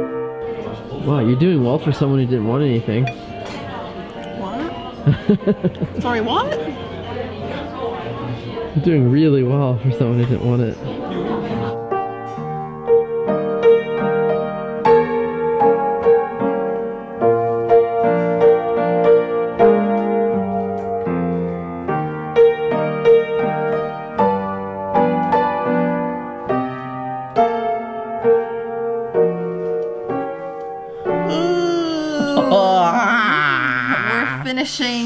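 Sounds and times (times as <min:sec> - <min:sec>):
solo piano music: 0:00.0 - 0:00.8, 0:11.7 - 0:31.3.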